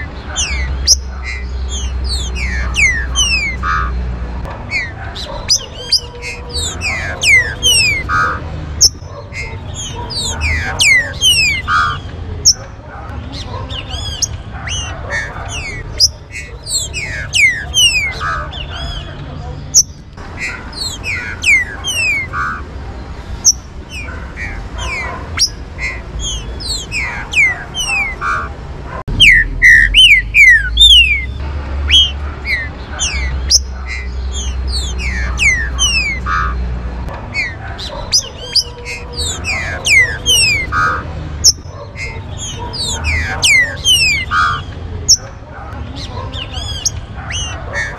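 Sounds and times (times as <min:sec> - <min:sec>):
birds whistling and calling: 0:00.0 - 0:47.9.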